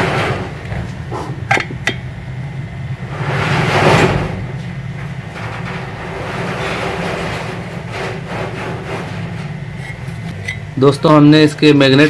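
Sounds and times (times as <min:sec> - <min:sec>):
steady low hum: 0:00.0 - 0:12.0
scraping rustle: 0:03.1 - 0:10.7.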